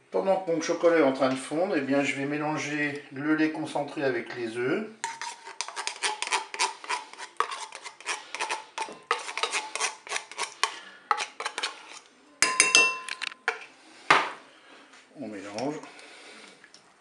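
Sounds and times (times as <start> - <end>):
metal spoon scraping a tin can: 5.0 - 12.1.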